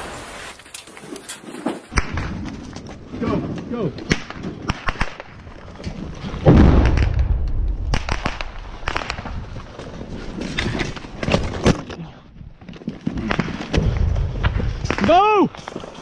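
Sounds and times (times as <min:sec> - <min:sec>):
rifle shots cracking: 0:04.0 - 0:05.4, 0:06.4 - 0:09.3
deep rumbling boom: 0:06.4 - 0:09.4, 0:13.8 - 0:15.0.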